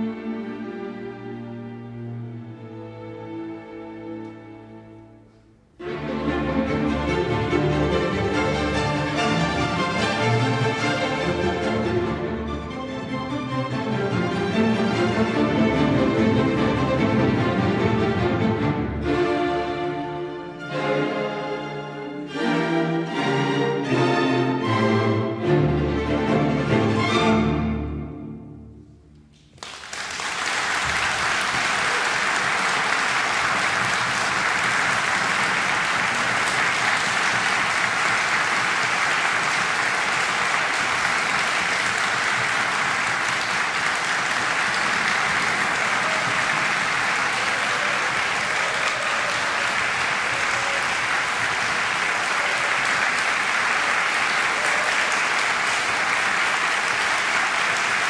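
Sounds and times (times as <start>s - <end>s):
audience applauding: 29.4s - 58.0s.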